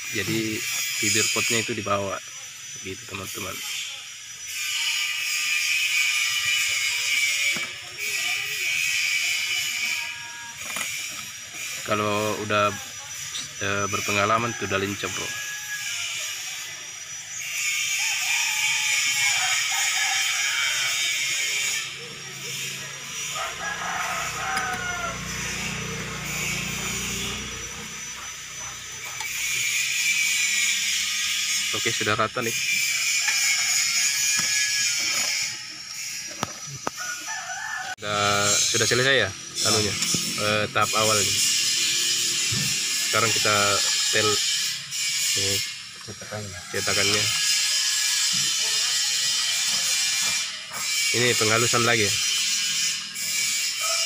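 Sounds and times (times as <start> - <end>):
trowel scraping mortar: 26.2 - 37.0.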